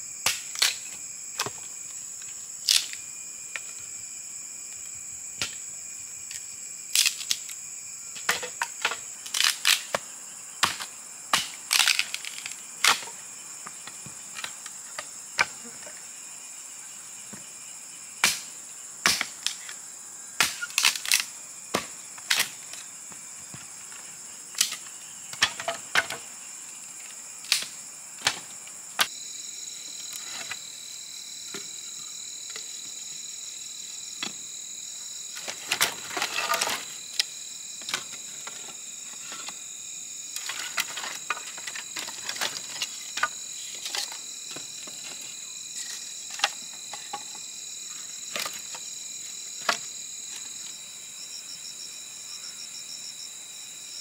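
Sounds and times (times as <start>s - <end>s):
insects buzzing: 0.0s - 54.0s.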